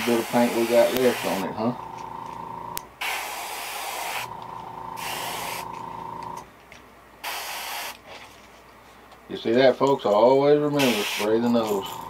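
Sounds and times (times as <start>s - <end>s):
airbrush spraying hissing bursts: 0.0s - 1.6s, 3.0s - 4.3s, 4.9s - 5.8s, 7.2s - 8.0s, 10.8s - 11.7s
steady hum: 0.0s - 3.0s, 4.0s - 6.5s.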